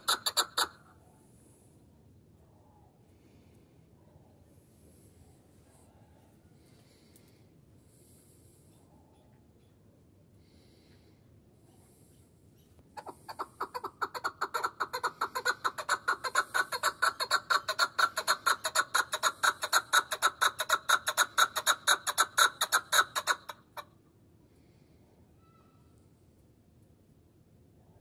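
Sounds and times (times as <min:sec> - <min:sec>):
partridge clucking calls: 0:00.0 - 0:00.8, 0:13.0 - 0:23.9.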